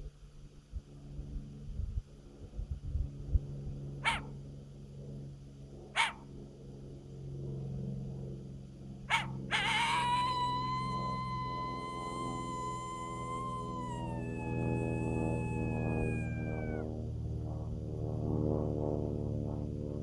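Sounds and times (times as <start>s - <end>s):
coyote call howl: 4.0s - 4.3s, 6.0s - 6.2s, 9.1s - 16.9s
coyote call barks: 4.0s - 4.4s, 6.0s - 6.3s, 9.1s - 16.8s.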